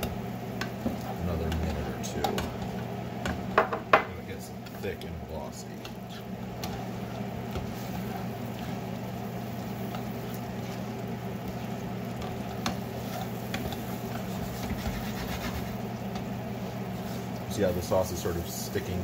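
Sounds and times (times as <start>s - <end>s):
steady low hum: 0.0s - 19.0s
stir fry sizzling in a skillet: 0.0s - 19.0s
tongs clicking against pan: 1.5s - 3.4s.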